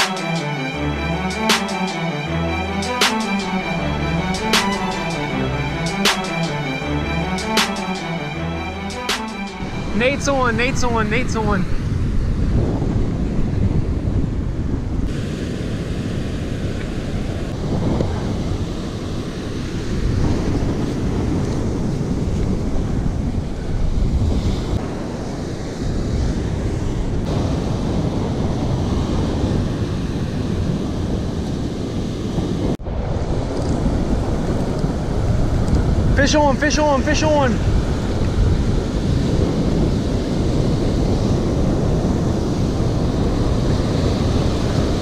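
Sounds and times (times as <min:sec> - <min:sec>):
ocean surf breaking: 0:00.0 - 0:45.0
wind buffeting microphone: 0:09.7 - 0:45.0.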